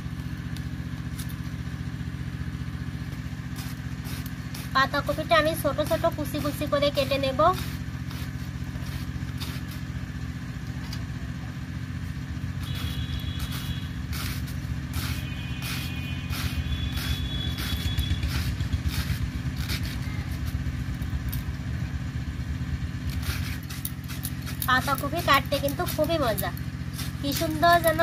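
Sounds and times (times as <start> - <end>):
low engine hum: 0.0 - 28.0
knife slicing cabbage: 12.6 - 20.7, 23.0 - 28.0.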